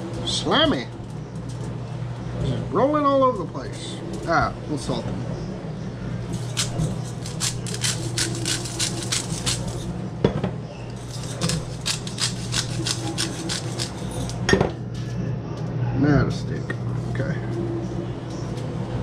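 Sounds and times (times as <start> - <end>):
low steady hum: 0.0 - 19.0
salt grinder clicking: 11.1 - 14.0.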